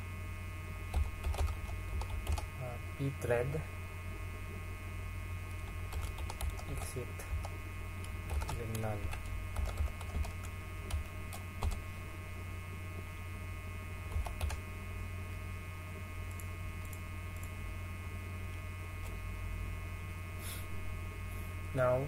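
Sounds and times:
steady electrical hum: 0.0s - 22.0s
computer keyboard keys clicking: 0.9s - 2.5s, 5.9s - 11.8s, 14.1s - 14.6s.

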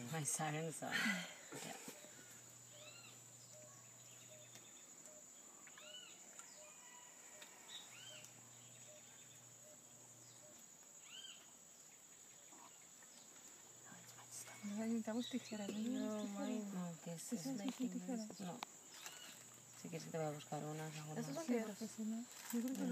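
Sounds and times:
high-pitched insect drone: 0.0s - 11.5s
bird calls: 1.6s - 13.5s, 18.2s - 19.6s.

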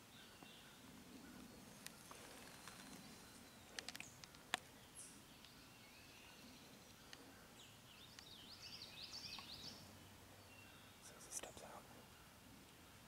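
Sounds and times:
songbird chirping: 0.0s - 13.0s
small sharp clicks: 3.7s - 4.7s.

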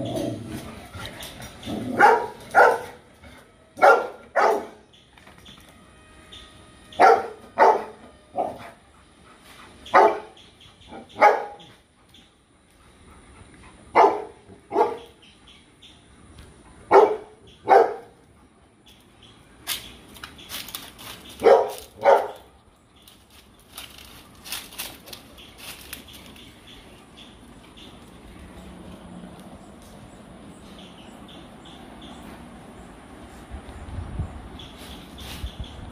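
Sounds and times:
dog barking: 2.0s - 3.0s, 3.8s - 4.8s, 7.0s - 8.6s, 9.9s - 10.4s, 11.0s - 11.7s, 13.9s - 15.1s, 16.9s - 18.2s, 21.4s - 22.5s.

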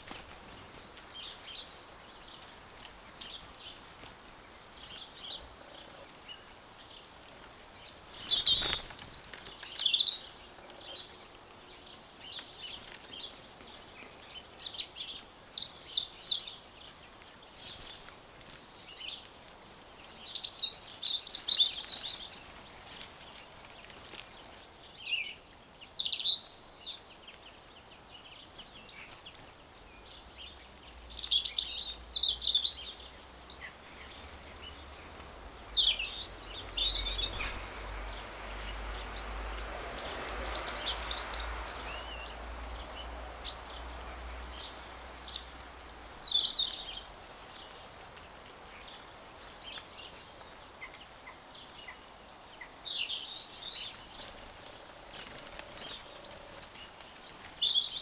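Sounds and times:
small birds chirping: 0.0s - 58.0s.

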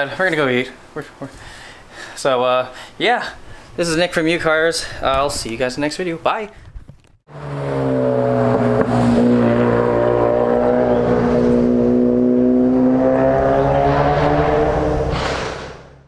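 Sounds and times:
engine at high revs: 7.3s - 16.0s.

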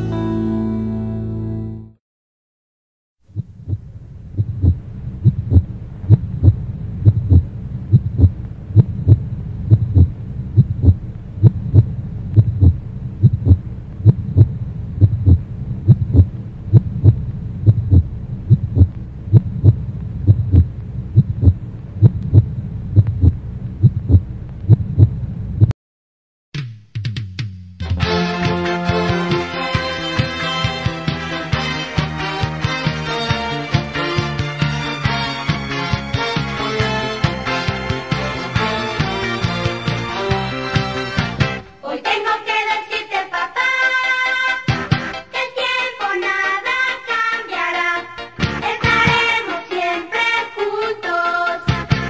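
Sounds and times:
low hum: 3.2s - 25.7s
heartbeat thumps: 3.3s - 25.7s, 48.8s - 49.3s.

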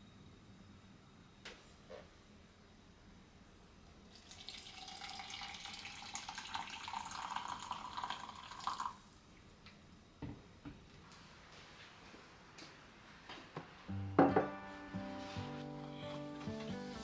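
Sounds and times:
water pouring into a steel tumbler: 4.1s - 9.0s.

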